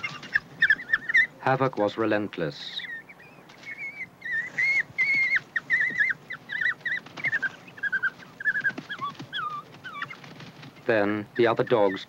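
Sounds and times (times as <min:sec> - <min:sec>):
wild dogs twittering squeals: 0:00.0 - 0:01.4, 0:02.7 - 0:10.7.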